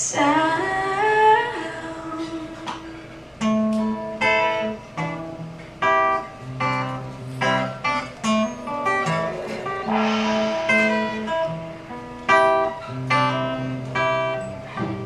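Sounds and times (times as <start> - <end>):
acoustic guitar strumming: 2.2 - 15.0.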